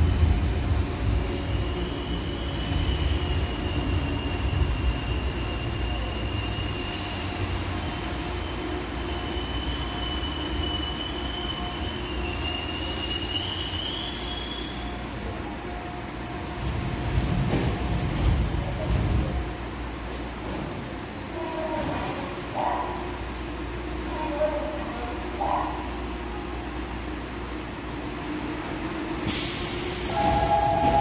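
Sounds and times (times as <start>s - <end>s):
electric train braking with squeal: 1.4s - 15.4s, 29.3s - 31.0s
air hiss bursts: 29.2s - 30.9s.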